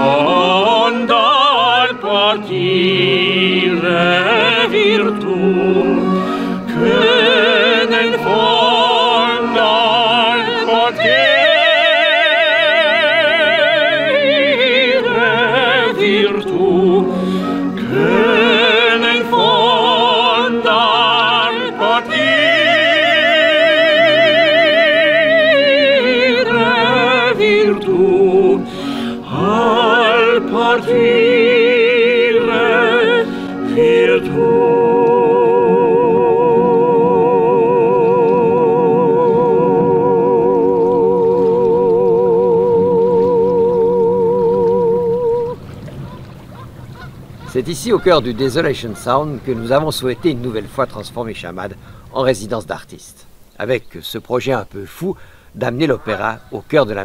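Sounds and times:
soprano and tenor singing opera: 0.0s - 45.8s.

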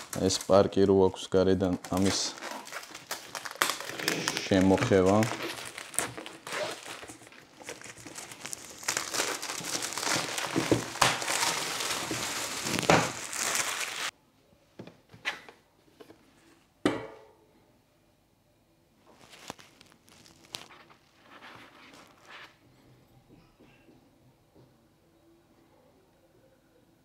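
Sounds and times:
shrink-wrap crinkling and tearing: 0.0s - 0.8s, 1.5s - 14.1s, 19.1s - 22.3s.

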